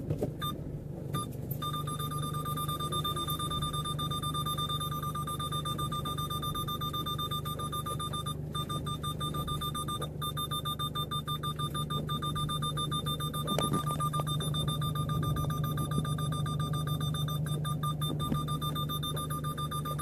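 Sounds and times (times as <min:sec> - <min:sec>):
engine and road rumble: 0:00.0 - 0:20.0.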